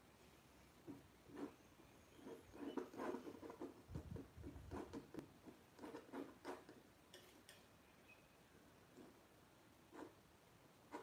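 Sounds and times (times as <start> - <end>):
palette knife scraping on canvas: 1.3 - 6.7.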